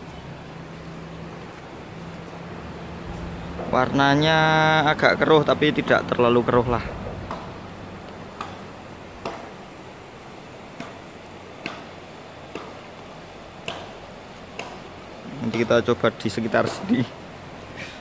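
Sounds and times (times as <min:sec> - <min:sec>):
river water rushing: 0:00.0 - 0:18.0.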